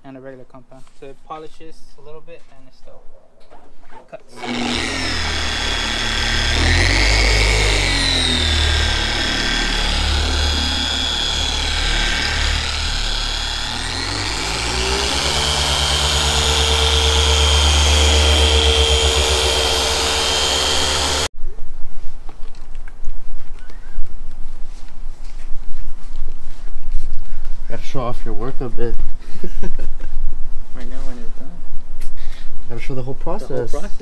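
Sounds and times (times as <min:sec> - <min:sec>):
electric car polisher whining: 0:04.3 - 0:21.3.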